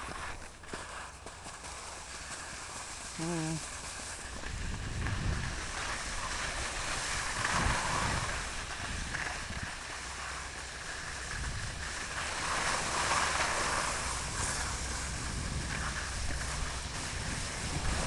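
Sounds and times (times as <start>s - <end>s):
skis scraping over snow: 0.0s - 18.0s
wind buffeting microphone: 4.2s - 18.0s.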